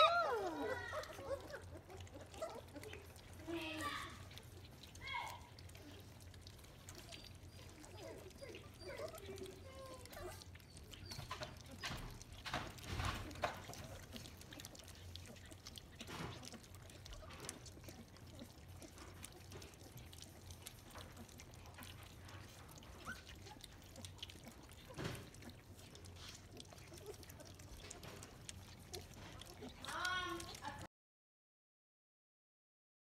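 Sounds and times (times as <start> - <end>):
puppy squeak: 0.0 - 2.9, 6.9 - 14.0, 22.8 - 23.7
puppies lapping: 0.0 - 30.9.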